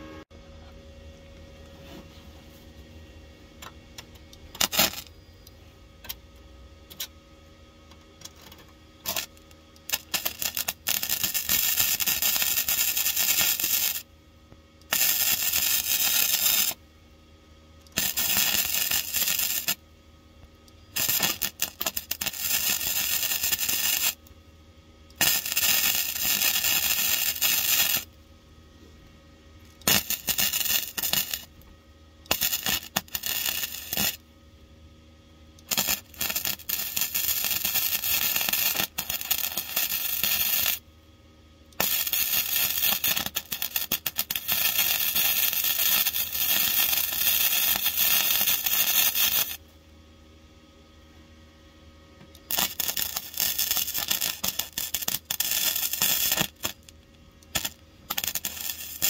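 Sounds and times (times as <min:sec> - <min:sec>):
welder arc crackling: 0:04.0 - 0:05.1, 0:08.3 - 0:14.1, 0:14.8 - 0:16.8, 0:17.8 - 0:19.8, 0:20.7 - 0:24.4, 0:25.1 - 0:28.2, 0:29.6 - 0:34.2, 0:35.6 - 0:40.8, 0:41.8 - 0:49.6, 0:52.3 - 0:59.0.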